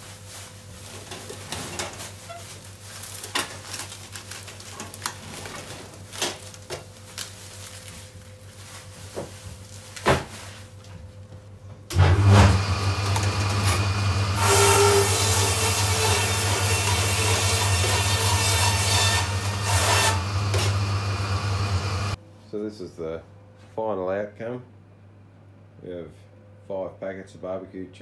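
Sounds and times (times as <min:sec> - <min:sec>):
low machine hum: 0:10.6 - 0:28.0.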